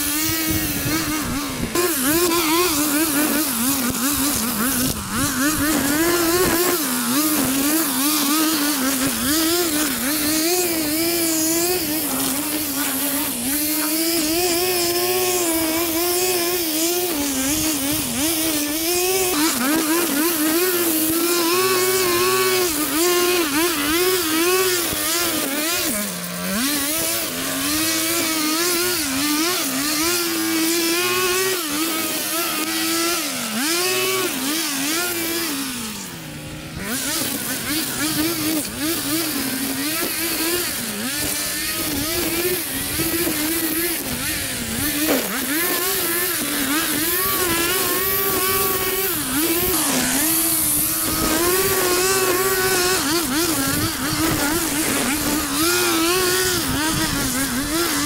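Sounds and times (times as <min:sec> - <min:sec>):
small gasoline engine running: 0:00.0 - 0:58.0.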